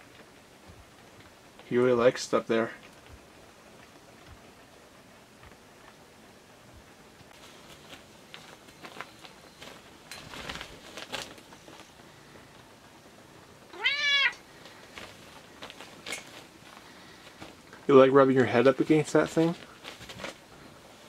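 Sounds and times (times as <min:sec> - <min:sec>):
faint taps and rustles: 0:00.0 - 0:01.8, 0:02.7 - 0:04.7, 0:05.3 - 0:06.1, 0:06.8 - 0:12.7, 0:14.6 - 0:21.0
cat meowing: 0:13.7 - 0:14.4.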